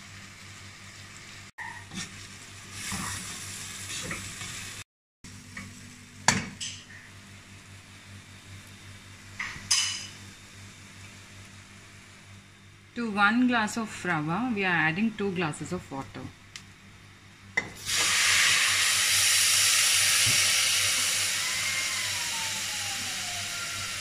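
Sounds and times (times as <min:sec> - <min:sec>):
frying sizzle: 0:00.0 - 0:12.5, 0:17.6 - 0:24.0.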